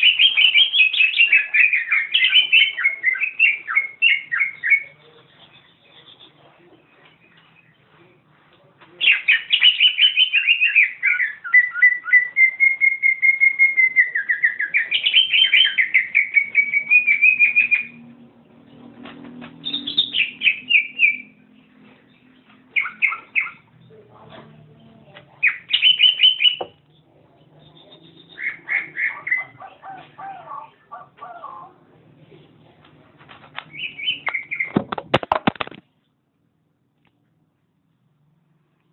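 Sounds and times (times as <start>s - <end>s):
bird singing chattering notes: 0.0s - 7.8s, 9.0s - 18.0s, 19.6s - 21.4s, 22.1s - 23.9s, 24.8s - 31.0s, 33.7s - 34.8s.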